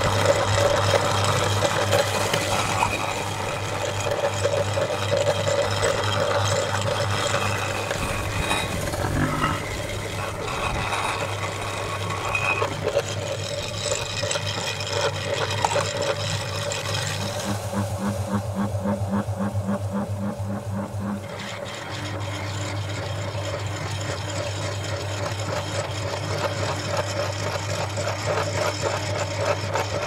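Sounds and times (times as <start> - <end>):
meat grinder humming: 0.0 - 30.0.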